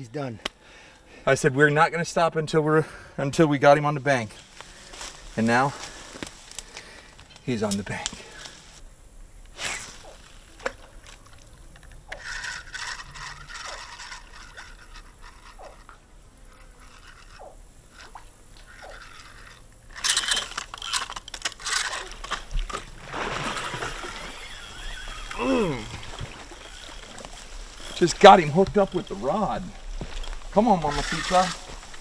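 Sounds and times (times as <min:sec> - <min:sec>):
fishing reel cranking: 0:12.1 - 0:16.0, 0:16.6 - 0:22.8, 0:23.9 - 0:29.1, 0:30.8 - 0:31.7
alligator splashing in water: 0:21.6 - 0:32.0.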